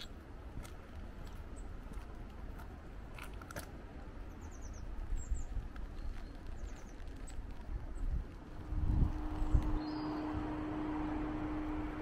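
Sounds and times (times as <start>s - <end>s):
wind rumble on microphone: 0.0s - 12.0s
small bird chirping: 9.3s - 10.4s.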